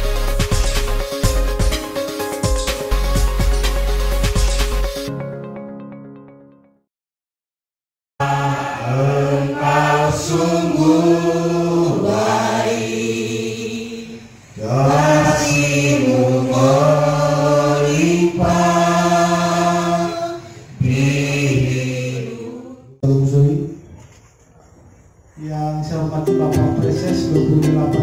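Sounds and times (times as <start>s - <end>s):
slow singing in held phrases: 8.2s - 23.0s.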